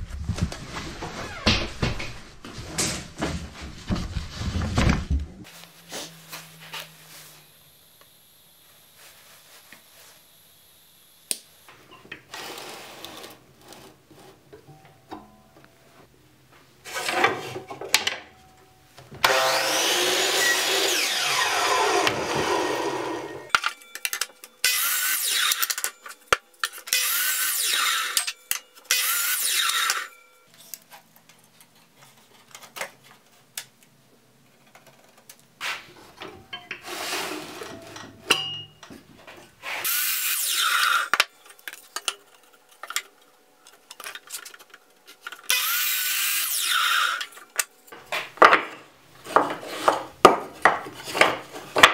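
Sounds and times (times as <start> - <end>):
miter saw cutting wood: 19.2 - 23.5, 24.6 - 25.8, 26.9 - 28.3, 28.9 - 30.1, 39.8 - 41.2, 45.5 - 47.4.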